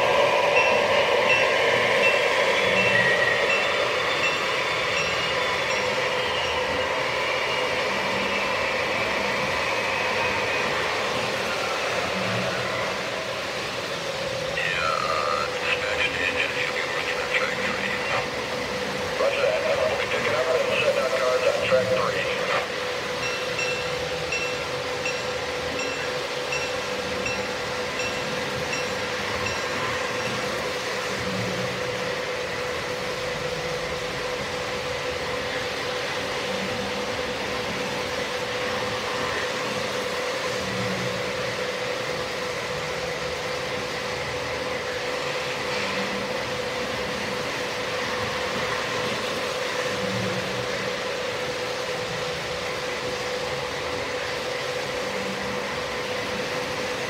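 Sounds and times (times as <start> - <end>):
faint high beeping: 0.0 - 10.6
motor hum: 0.0 - 16.4
model train wheels rumbling on rail: 0.0 - 57.0.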